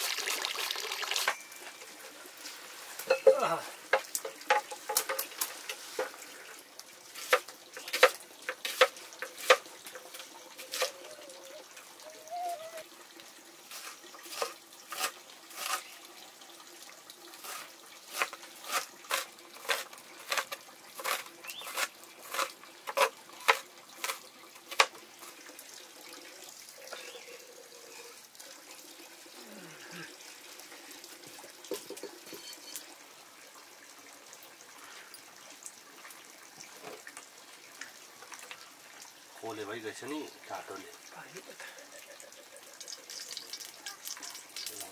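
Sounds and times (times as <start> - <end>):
water trickling: 0.0 - 44.9.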